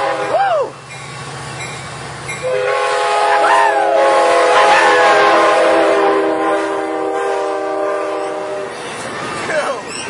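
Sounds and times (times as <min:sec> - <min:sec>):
locomotive air horn blast: 0:00.0 - 0:00.7, 0:02.4 - 0:08.8
train passing at speed: 0:00.0 - 0:10.0.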